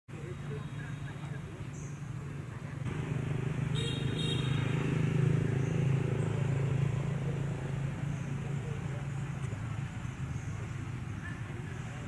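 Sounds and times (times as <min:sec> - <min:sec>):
motor engine humming: 0:02.6 - 0:12.0.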